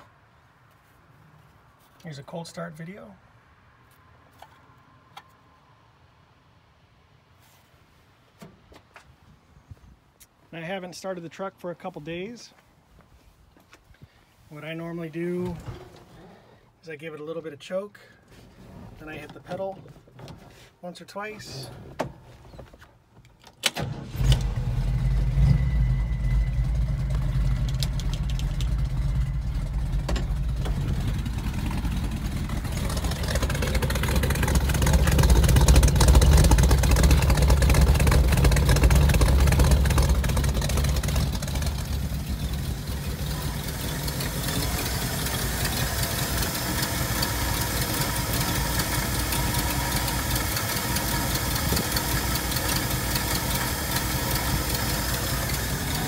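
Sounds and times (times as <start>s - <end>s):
truck engine starting and idling: 23.4s - 56.0s.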